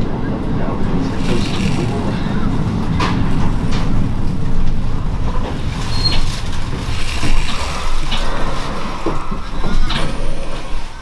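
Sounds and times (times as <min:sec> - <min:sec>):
train rumbling: 0:00.0 - 0:11.0
high squeak: 0:05.8 - 0:06.4.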